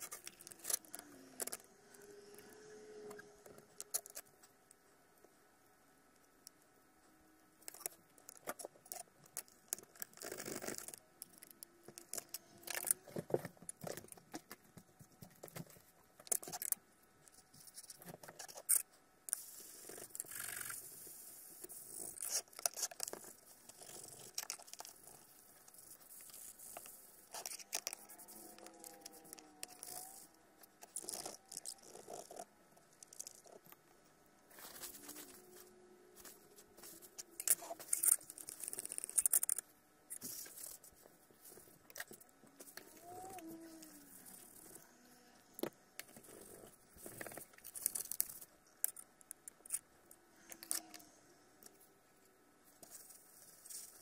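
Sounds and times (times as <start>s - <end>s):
small plastic clicks: 7.6s - 20.8s, 21.6s - 33.8s, 36.8s - 40.8s, 45.6s - 51.8s.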